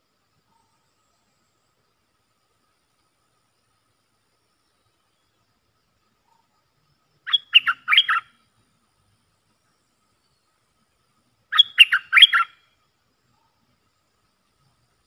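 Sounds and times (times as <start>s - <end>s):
bulbul calling: 7.2s - 8.4s, 11.5s - 12.6s.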